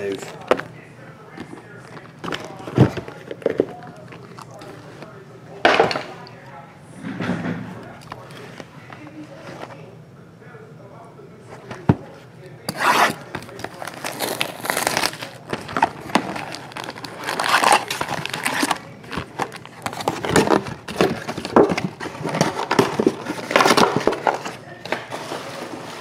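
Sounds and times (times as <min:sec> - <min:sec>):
foil packs rustling: 0:00.0 - 0:05.2, 0:12.6 - 0:26.0
plastic shrink wrap crinkling: 0:12.7 - 0:26.0.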